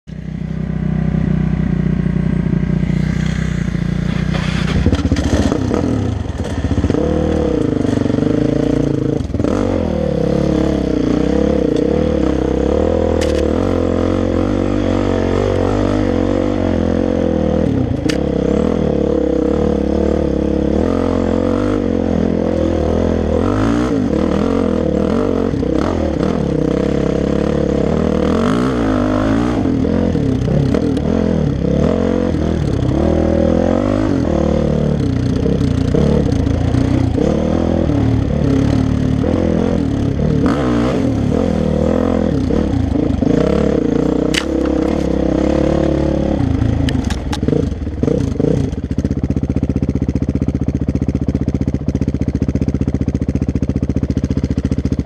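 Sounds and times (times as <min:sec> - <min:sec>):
dirt bike engine revving: 0:00.2 - 0:50.9
bike knocking and rattling: 0:03.8 - 0:07.0, 0:44.3 - 0:45.2.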